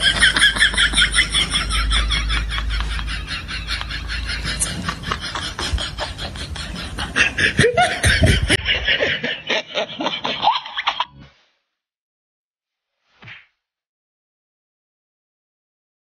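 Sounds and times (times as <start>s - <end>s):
person laughing: 0.0s - 11.2s.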